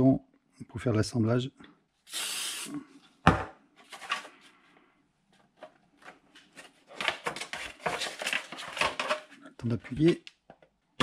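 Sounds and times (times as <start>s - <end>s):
plastic parts clicking and rubbing: 5.6s - 10.8s.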